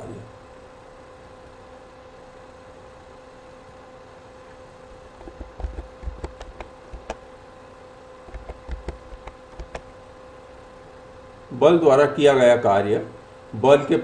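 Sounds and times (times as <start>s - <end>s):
steady electrical hum: 0.0s - 14.0s
computer keyboard typing: 5.2s - 7.2s, 8.3s - 9.8s.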